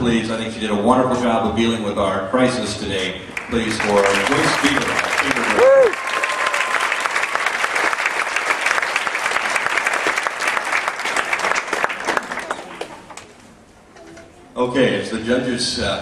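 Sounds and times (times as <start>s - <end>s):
audience applauding: 3.3s - 13.3s.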